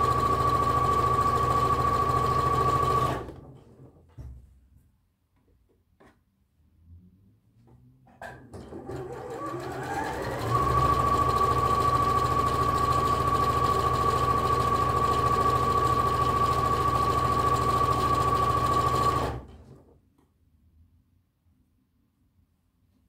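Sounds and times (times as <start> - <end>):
sewing machine whining: 0.0 - 3.5, 8.6 - 19.8.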